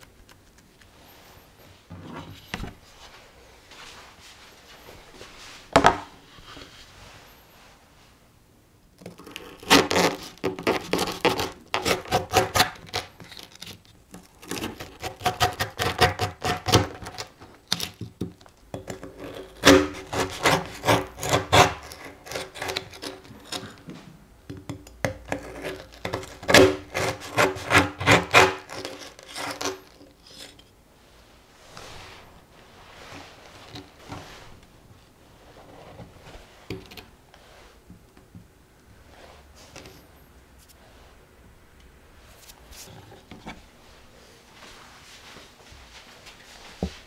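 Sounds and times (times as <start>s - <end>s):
knife sawing through biscuit: 9.2s - 13.2s, 14.4s - 17.2s, 19.1s - 23.8s, 25.3s - 30.5s.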